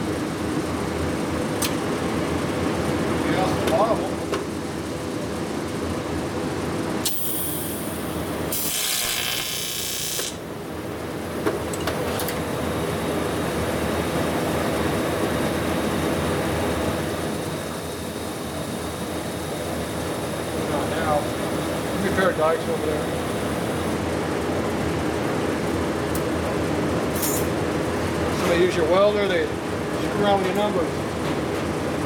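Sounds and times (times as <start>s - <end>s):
welding equipment hum: 7.0s - 11.8s, 12.4s - 24.4s.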